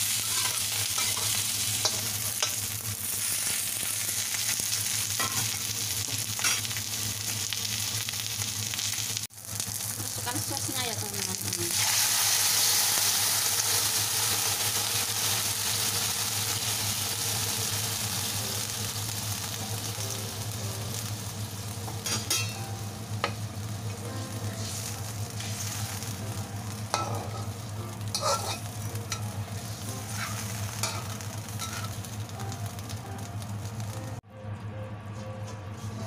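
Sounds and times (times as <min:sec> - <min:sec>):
metal spatula scraping wok: 0:00.0 - 0:04.1, 0:24.5 - 0:26.1, 0:26.9 - 0:32.1
sauce sizzling in a hot wok: 0:00.0 - 0:34.2.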